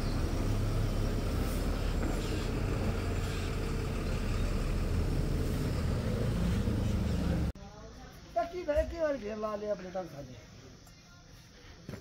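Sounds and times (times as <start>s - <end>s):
truck engine rumbling: 0.0s - 7.6s.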